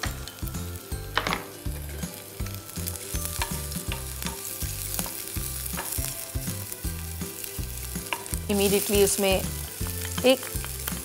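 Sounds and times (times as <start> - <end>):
garlic sizzling in oil: 0.0 - 11.0
spatula scraping and tapping pan: 7.9 - 8.4.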